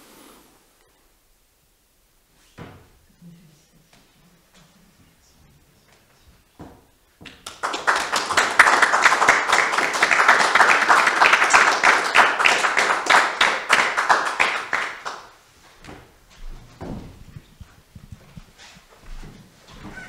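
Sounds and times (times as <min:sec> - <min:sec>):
small group applauding: 0:07.2 - 0:15.4.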